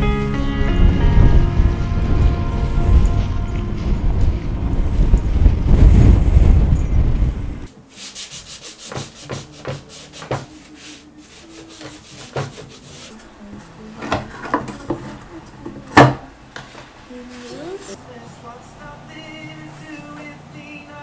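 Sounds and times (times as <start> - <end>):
loud low outdoor rush: 0.0 - 7.9
cloth wiping wooden lid: 7.9 - 13.2.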